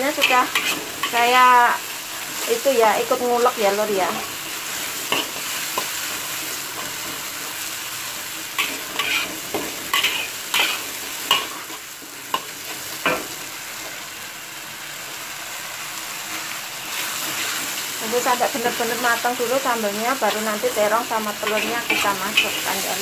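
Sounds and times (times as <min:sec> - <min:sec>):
metal spatula scraping a wok: 0:00.0 - 0:03.2, 0:04.1 - 0:07.4, 0:08.5 - 0:13.3, 0:16.9 - 0:17.8, 0:21.3 - 0:23.0
paste sizzling in oil: 0:00.0 - 0:23.0.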